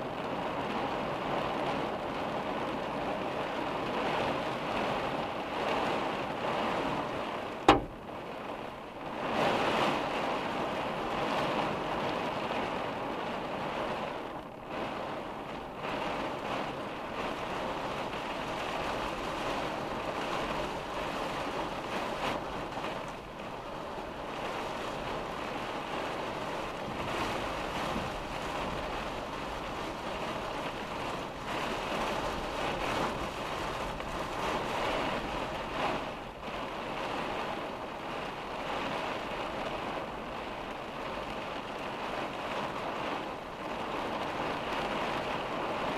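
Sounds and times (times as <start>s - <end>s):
rain and wind on vehicle: 0.0s - 45.9s
sharp loud knock: 7.7s - 8.0s.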